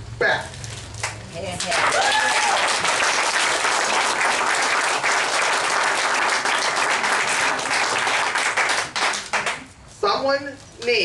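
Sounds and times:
audience applauding: 1.6s - 9.7s.

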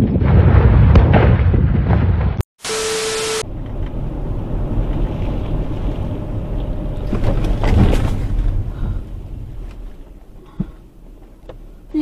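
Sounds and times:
car road rumble: 3.4s - 12.0s.

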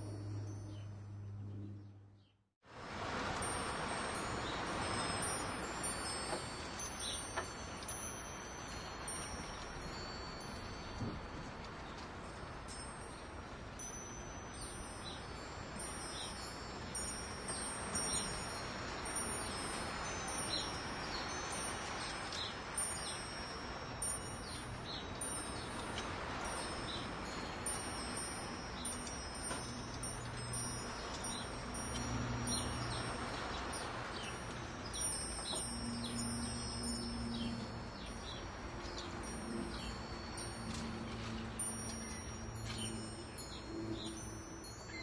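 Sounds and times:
metal wind chime tinkling: 0.0s - 1.7s, 3.2s - 45.0s
low hum: 0.0s - 2.3s
wind hiss: 2.6s - 45.0s.

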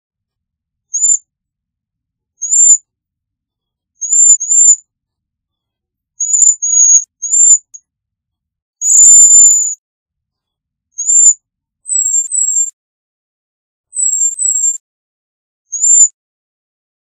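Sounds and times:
bird high thin whistled calls: 0.9s - 1.2s, 2.4s - 2.8s, 4.0s - 4.8s, 6.2s - 7.8s, 8.8s - 9.8s, 11.0s - 12.8s, 13.9s - 14.8s, 15.7s - 16.2s.

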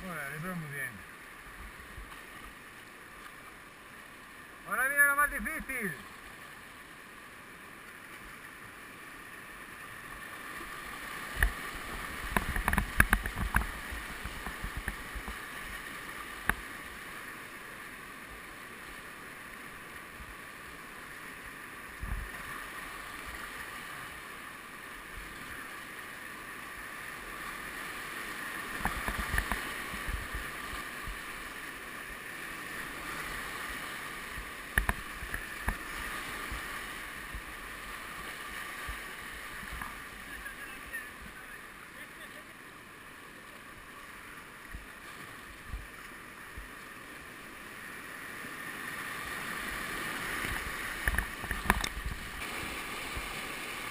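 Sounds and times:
whitewater rapids rushing: 9.1s - 53.9s
paddle thumps and splashes: 11.3s - 15.4s.

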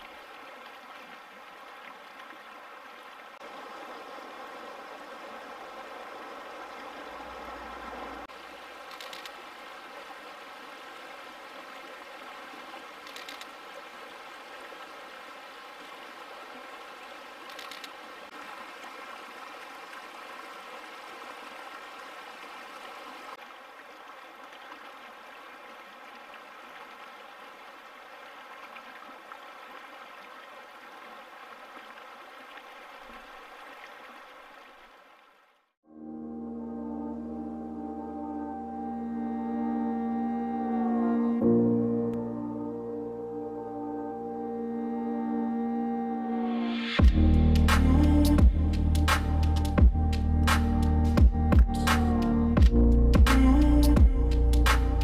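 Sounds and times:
fast mountain river rushing: 0.0s - 34.8s.

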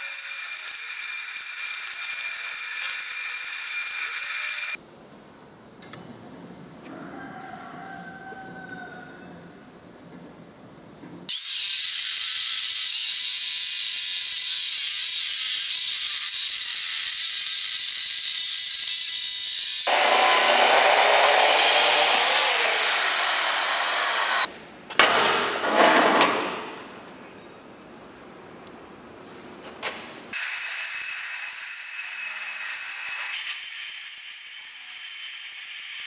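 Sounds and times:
chop saw grinding steel: 11.3s - 24.5s.

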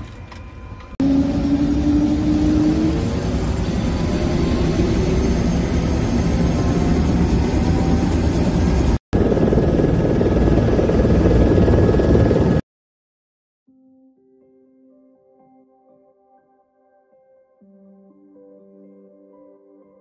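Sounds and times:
helicopter engine and rotor: 0.5s - 12.6s
faint rising whine: 0.6s - 12.6s.

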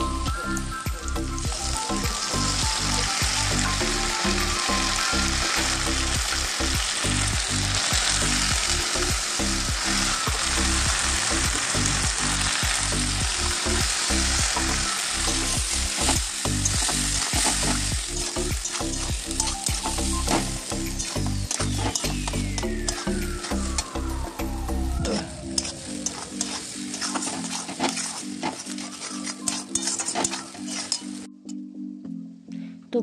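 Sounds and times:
chicken and onions sizzling in oil: 0.0s - 31.3s
metal spatula scraping pan: 18.6s - 22.3s, 25.6s - 31.3s.

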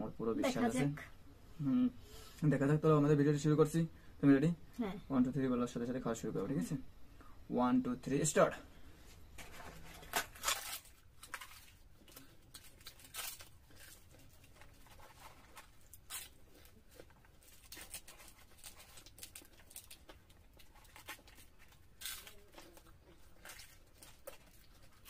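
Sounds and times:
bread tearing: 9.4s - 25.0s
person chewing: 10.5s - 25.0s.

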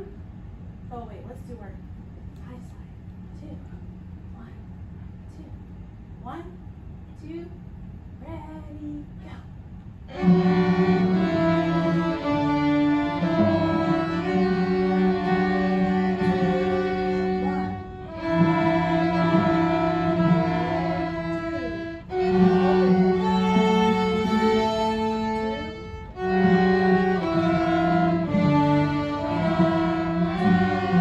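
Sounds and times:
string ensemble playing: 10.1s - 31.0s
violin playing along: 10.1s - 31.0s.

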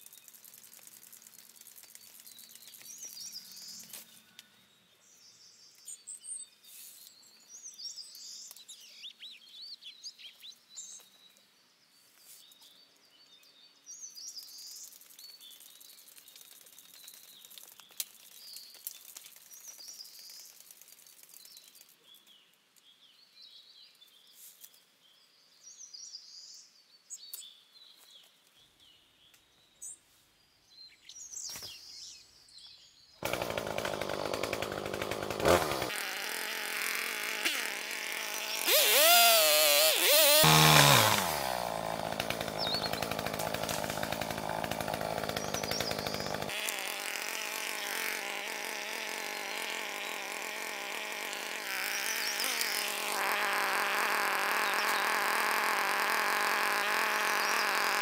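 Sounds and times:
chainsaw engine revving and idling: 33.2s - 58.0s.

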